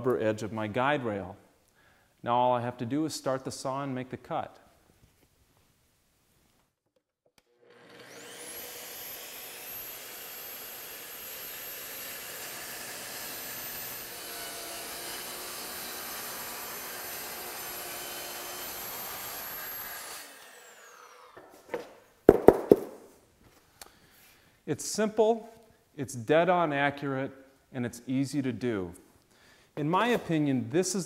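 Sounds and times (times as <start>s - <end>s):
track saw whining: 7.6s - 21.5s
wooden knocks: 21.7s - 23.1s.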